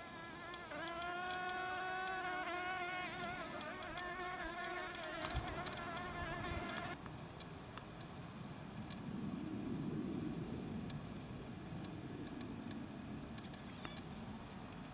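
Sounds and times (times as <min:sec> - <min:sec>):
bee buzzing in flight: 0:00.0 - 0:07.0.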